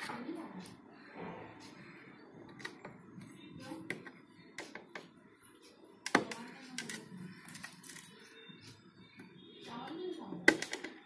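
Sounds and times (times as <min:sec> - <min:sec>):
plastic connectors clicking and rattling: 0:06.1 - 0:08.3, 0:10.4 - 0:11.0.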